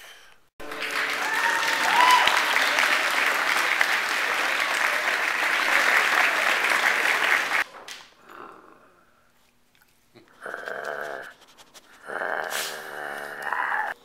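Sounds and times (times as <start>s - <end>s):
crowd applause: 0.6s - 7.7s.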